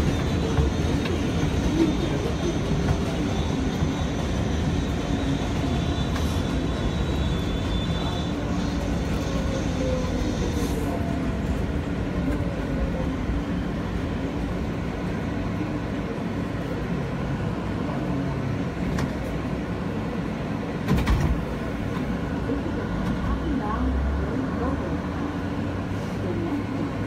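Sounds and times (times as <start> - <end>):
loud train clatter: 0.0 - 13.0, 18.5 - 23.6
train rumble and rail noise: 0.0 - 27.0.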